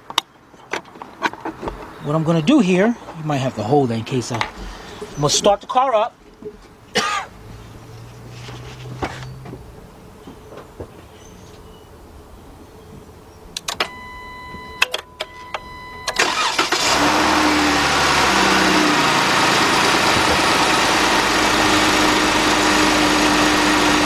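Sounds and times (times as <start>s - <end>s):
clicks: 13.6s - 16.2s
car engine starting and idling: 13.6s - 24.0s
electronic warning tone: 13.8s - 16.5s.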